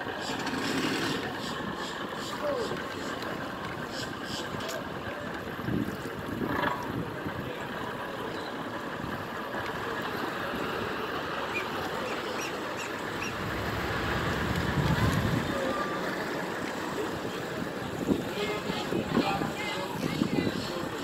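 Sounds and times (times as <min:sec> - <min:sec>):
water and wind around kayak: 0:00.0 - 0:21.0
low rush: 0:12.6 - 0:18.3.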